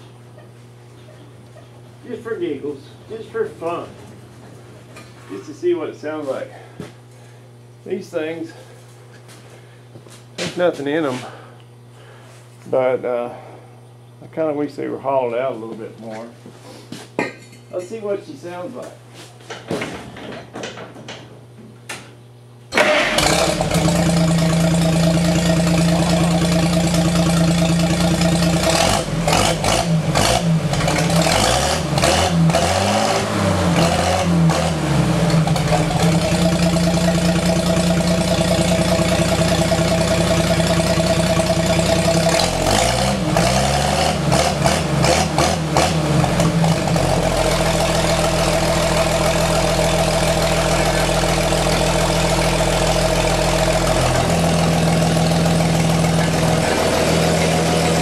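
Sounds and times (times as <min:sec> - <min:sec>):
engine cranking: 0:22.8 - 0:32.8
loud truck engine revving and idling: 0:22.8 - 0:58.0.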